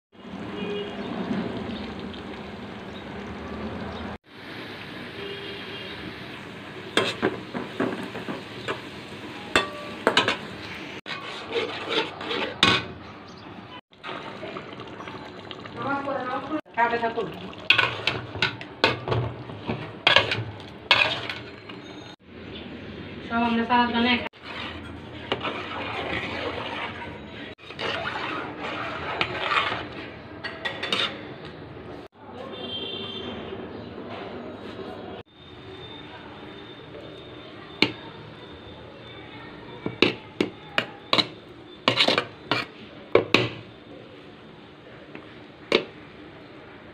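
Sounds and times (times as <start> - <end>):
liquid boiling: 0.2 - 9.4, 13.9 - 21.7, 24.4 - 30.1
frying sizzle: 0.2 - 11.0, 13.9 - 22.2
metal spatula scraping pan: 6.9 - 13.4, 17.7 - 22.2, 24.3 - 31.4, 39.8 - 43.7
ladle clattering in pot: 9.5 - 10.5, 11.1 - 13.0, 17.6 - 21.9, 24.4 - 31.3, 39.8 - 43.6.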